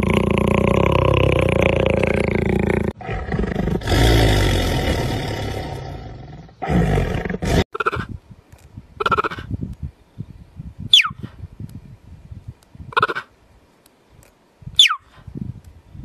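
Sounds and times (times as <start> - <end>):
leopard growling: 0.0 - 7.7
panther snarling: 0.0 - 7.7.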